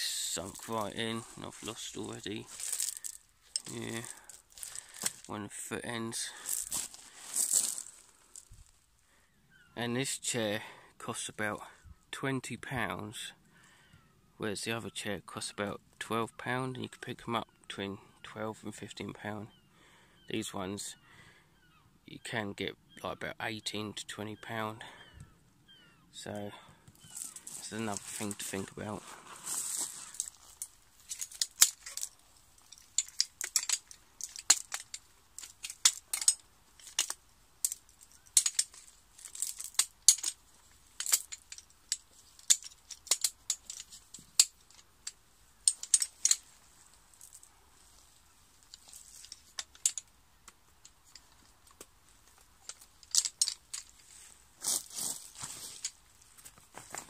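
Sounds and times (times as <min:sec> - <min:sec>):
metal tubes clicking and clinking: 0:00.0 - 0:05.4, 0:27.0 - 0:28.9, 0:29.5 - 0:47.5, 0:48.6 - 0:50.2, 0:50.8 - 0:56.0.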